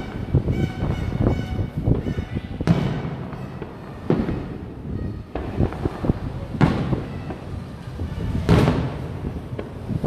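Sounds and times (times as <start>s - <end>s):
fireworks booming: 0.0s - 10.0s
small firework cracks: 2.6s - 10.0s.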